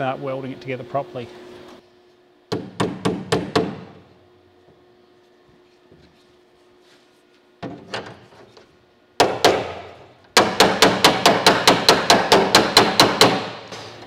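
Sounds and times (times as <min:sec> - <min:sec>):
hammer striking sheet metal: 0:10.4 - 0:14.0.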